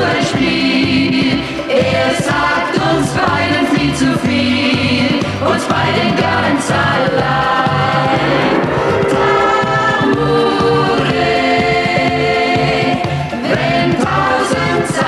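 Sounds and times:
choir singing held notes: 0:04.8 - 0:15.0.

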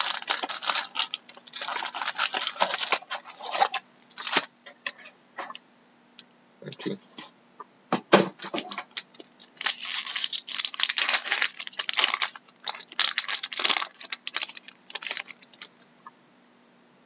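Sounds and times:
foil wrapper tearing and crinkling: 0:00.0 - 0:04.5, 0:08.4 - 0:16.0.

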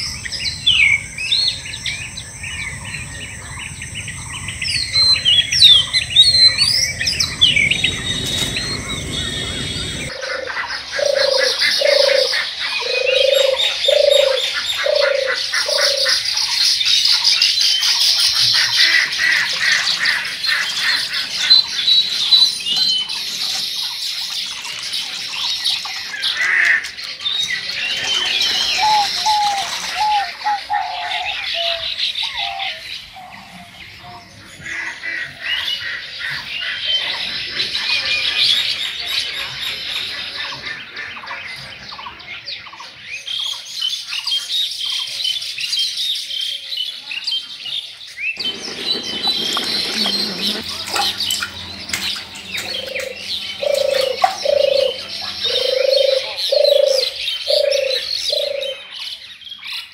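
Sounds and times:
small birds chirping: 0:00.0 - 0:34.6, 0:46.5 - 0:59.9
dove cooing: 0:00.1 - 0:16.2, 0:27.8 - 0:31.8, 0:48.4 - 0:58.8.

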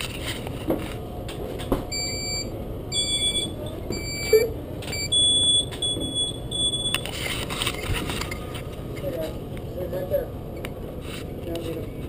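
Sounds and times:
higher-pitched beeps: 0:01.9 - 0:07.1
high warning beeps: 0:01.9 - 0:07.2.

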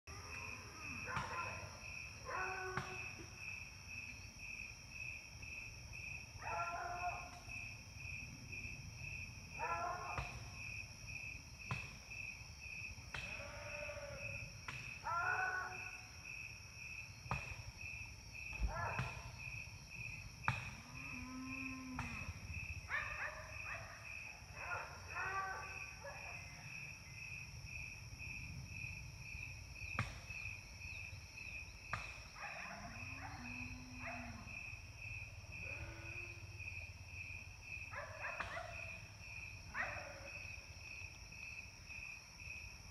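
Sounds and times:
crickets chirping: 0:00.1 - 0:42.9
animal barking: 0:00.8 - 0:03.1, 0:06.4 - 0:07.4, 0:09.6 - 0:10.4, 0:18.6 - 0:19.3, 0:22.9 - 0:26.4, 0:32.4 - 0:34.6, 0:37.9 - 0:39.0, 0:39.7 - 0:40.4.

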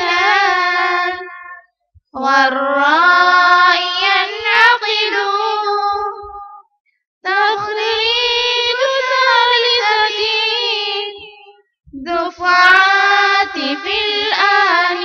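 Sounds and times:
child singing unaccompanied: 0:00.0 - 0:06.6, 0:07.3 - 0:15.0.

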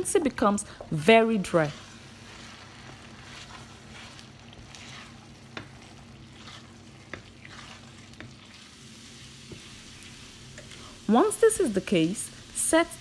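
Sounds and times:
tomato sauce sizzling in a pan: 0:00.0 - 0:13.0
wooden spoon stirring: 0:00.8 - 0:10.9.

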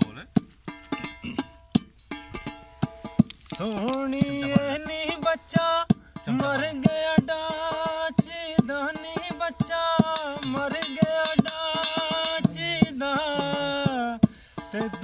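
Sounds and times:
hand beats on steel bowl: 0:00.0 - 0:15.0
man singing folk song: 0:03.5 - 0:15.0
spoon taps on steel bowl: 0:10.0 - 0:12.6.

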